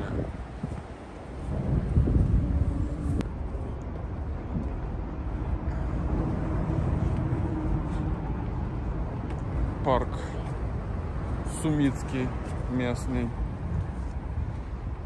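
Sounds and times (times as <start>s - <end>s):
faint engine hum: 0.0s - 15.0s
low rumble of vehicle noise: 0.0s - 15.0s.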